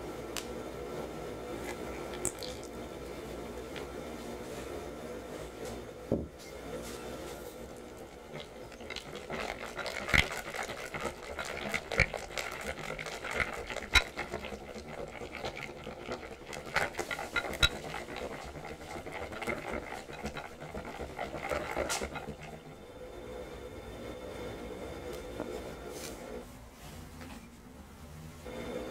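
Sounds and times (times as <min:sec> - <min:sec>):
whisk swishing in batter: 0:07.0 - 0:22.7
whisk clinking on glass bowl: 0:08.3 - 0:22.3.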